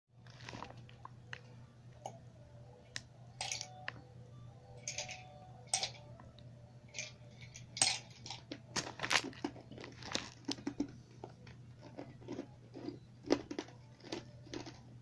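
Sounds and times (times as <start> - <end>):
faint low hum: 0.2 - 15.0
ice clicking in plastic bag: 8.8 - 10.9, 11.8 - 14.8.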